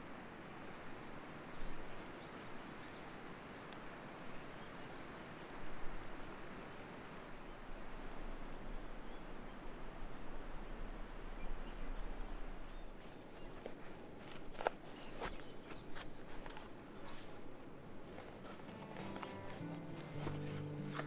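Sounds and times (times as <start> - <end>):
steady outdoor rush: 1.6 - 21.0
faint bird chirps: 18.1 - 21.0.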